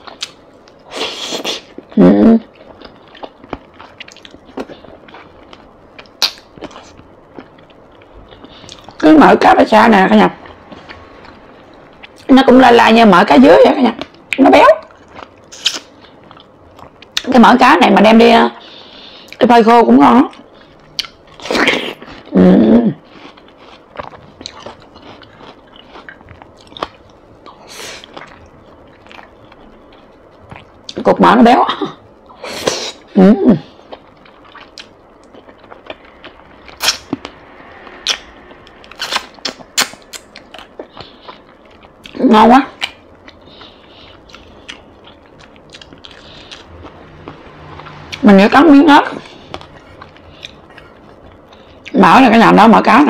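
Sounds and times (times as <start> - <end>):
chewing and lip smacks: 2.5 - 9.0, 23.1 - 31.0, 42.8 - 48.0, 49.3 - 52.0
wet noisy bite: 35.9 - 41.0.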